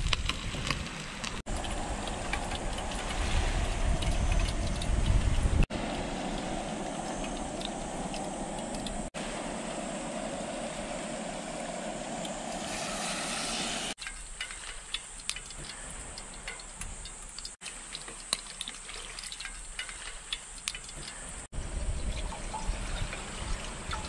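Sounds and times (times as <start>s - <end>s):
crackling and pops: 0.0s - 2.5s
gas stove hissing: 5.9s - 14.0s.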